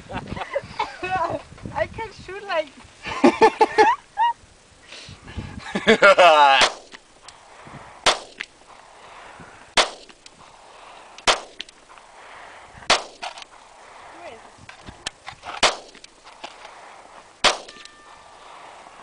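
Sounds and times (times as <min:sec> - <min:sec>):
handgun shots: 0:06.6 - 0:07.0, 0:08.0 - 0:08.5, 0:09.8 - 0:10.2, 0:11.2 - 0:11.7, 0:12.9 - 0:13.4, 0:15.5 - 0:16.1, 0:17.4 - 0:18.0.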